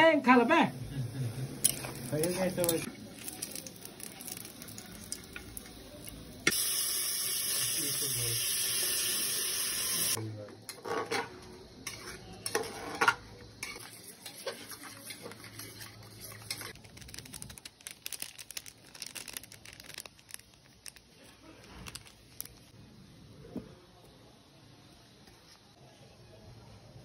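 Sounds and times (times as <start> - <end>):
steel kitchenware clattering: 10.8 - 16.8
spoon stirring in steel bowl: 11.8 - 17.1.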